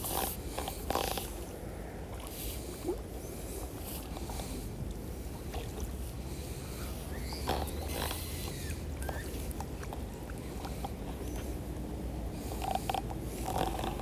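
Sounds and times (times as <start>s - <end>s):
fishing line clicks and rustles: 6.8s - 14.0s.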